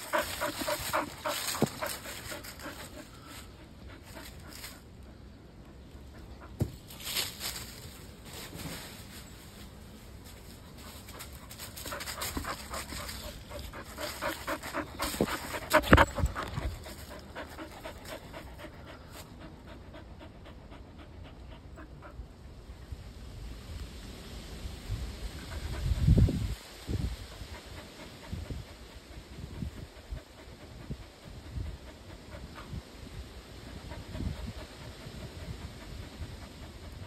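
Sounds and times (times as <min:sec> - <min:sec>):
dog panting: 0:00.0 - 0:06.7, 0:10.3 - 0:22.3, 0:27.3 - 0:37.0
thumps and rustles: 0:06.5 - 0:09.3, 0:14.1 - 0:17.1.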